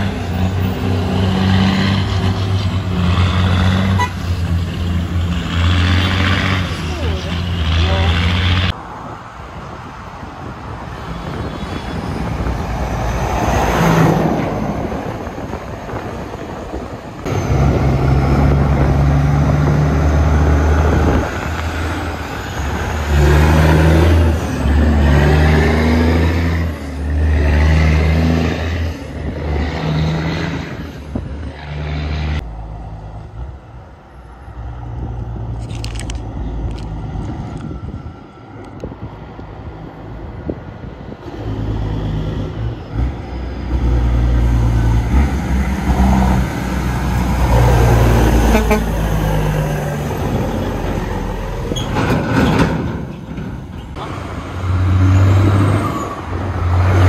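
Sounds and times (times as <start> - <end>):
diesel truck engine rumble: 0.0 - 57.0
vehicle passing: 41.2 - 53.0
distant truck engine rumbling: 41.2 - 57.0.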